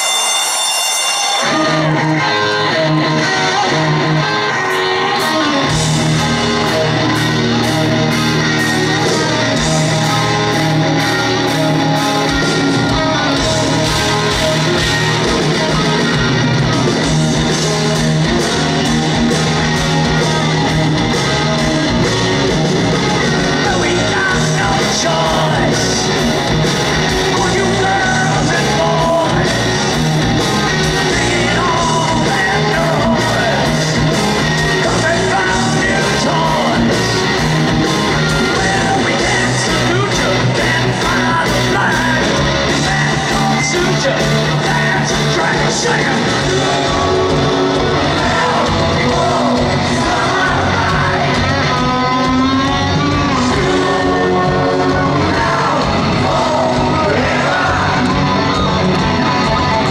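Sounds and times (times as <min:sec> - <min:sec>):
electric guitar: 0:00.0 - 0:59.9
live rock band playing: 0:00.0 - 0:59.9
man singing: 0:01.4 - 0:04.6, 0:08.7 - 0:15.8, 0:23.0 - 0:59.9.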